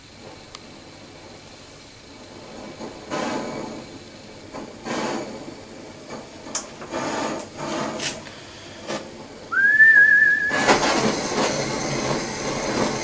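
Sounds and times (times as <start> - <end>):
torch flame rushing hiss: 0.0 - 13.0
brief high whistle: 9.5 - 11.1.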